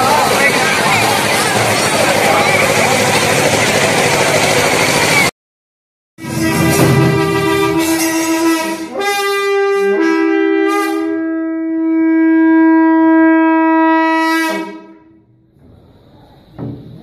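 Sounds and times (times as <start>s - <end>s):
wind instrument note: 6.2s - 15.2s.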